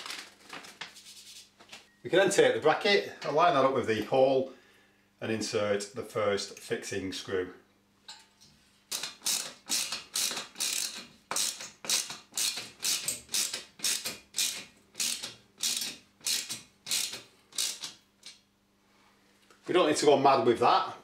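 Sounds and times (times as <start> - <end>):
screwdriver driving screw: 8.9 - 18.0.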